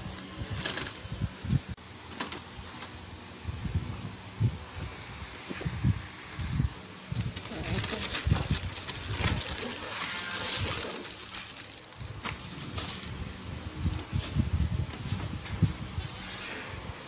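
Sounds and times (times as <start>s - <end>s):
plastic wrap crinkling: 7.1s - 14.4s.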